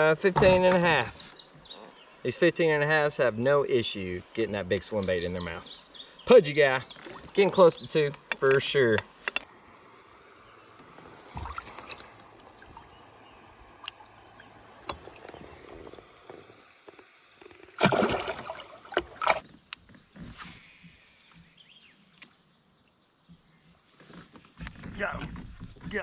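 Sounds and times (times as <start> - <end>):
small knocks and sloshing: 10.8 - 19.6
water splashing: 11.0 - 16.7, 17.6 - 19.4.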